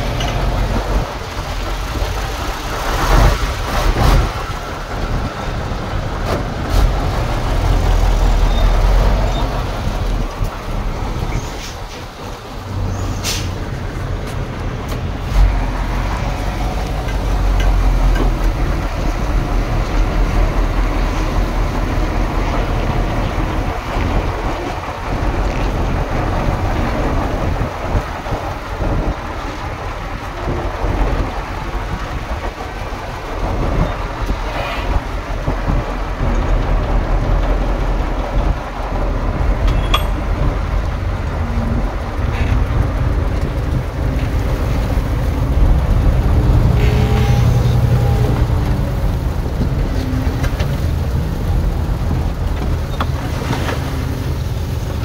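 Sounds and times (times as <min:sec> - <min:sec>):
heavy diesel machinery rumbling: 0:00.0 - 0:55.0.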